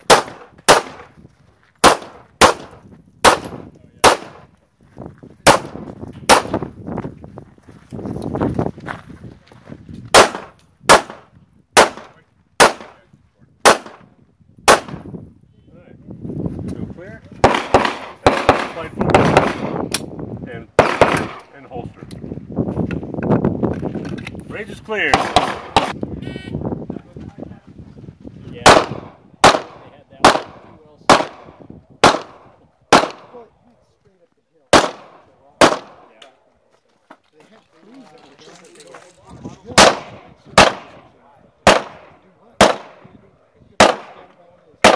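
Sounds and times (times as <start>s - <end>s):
pistol shots with echo: 0.0s - 1.1s, 1.8s - 4.5s, 5.4s - 6.7s, 10.1s - 13.0s, 13.6s - 14.1s, 14.7s - 15.0s, 17.4s - 20.1s, 20.8s - 21.5s, 25.1s - 26.0s, 28.6s - 33.4s, 34.7s - 36.2s, 39.7s - 43.2s, 43.8s - 44.9s.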